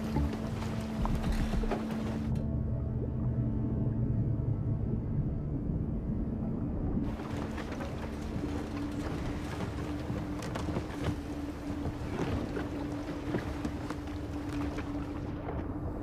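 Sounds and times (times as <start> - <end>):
water splashing: 0.0 - 2.4, 7.1 - 15.8
boat motor humming: 0.0 - 5.0, 7.1 - 16.0
wind: 0.0 - 16.0.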